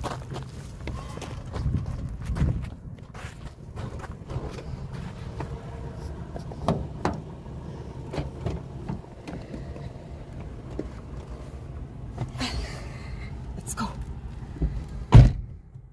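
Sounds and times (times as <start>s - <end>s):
engine idling: 3.4s - 15.9s.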